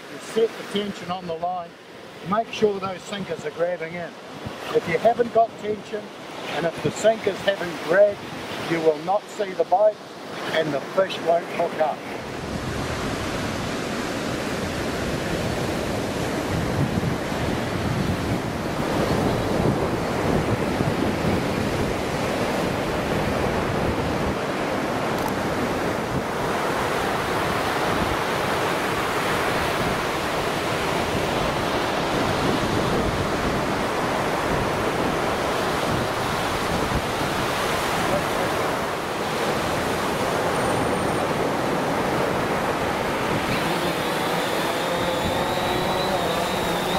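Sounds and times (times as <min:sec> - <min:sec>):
surf washing onto beach: 0:00.0 - 0:46.9
wind buffeting microphone: 0:12.2 - 0:46.9.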